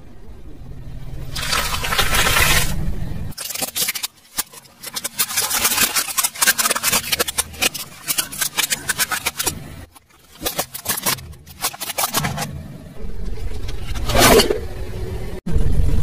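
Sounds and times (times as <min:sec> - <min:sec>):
low engine hum: 0:12.6 - 0:16.0.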